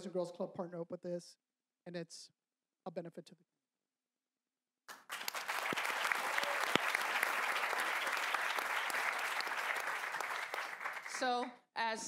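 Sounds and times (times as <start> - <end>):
audience applauding: 4.9 - 11.5.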